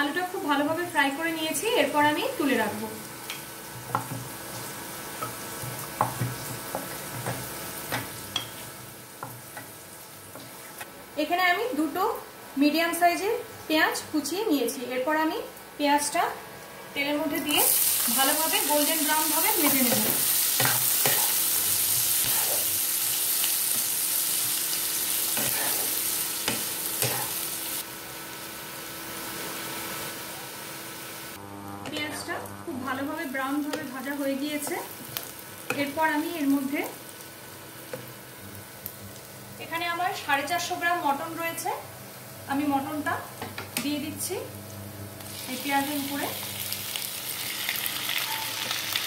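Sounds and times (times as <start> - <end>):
oil sizzling in a frying pan: 0.0 - 10.9, 17.3 - 31.4, 32.9 - 41.7, 45.2 - 49.0
spatula tapping: 5.2 - 8.6
spatula stirring and scraping: 19.8 - 22.8, 25.3 - 27.3.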